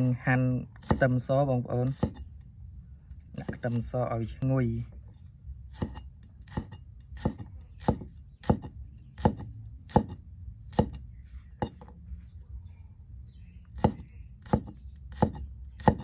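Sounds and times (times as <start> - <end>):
knife slicing garlic: 0.6 - 2.3, 5.7 - 11.0, 13.8 - 16.0.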